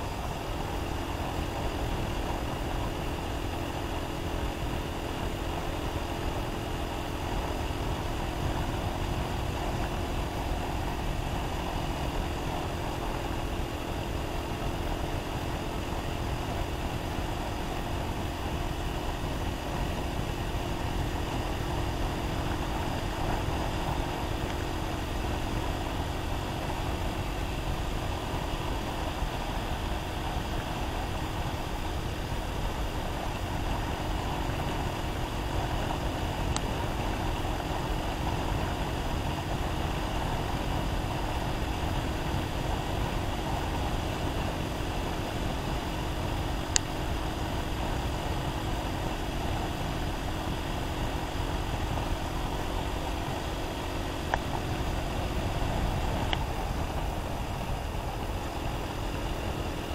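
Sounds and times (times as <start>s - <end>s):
motorcycle engine running: 0.0s - 59.9s.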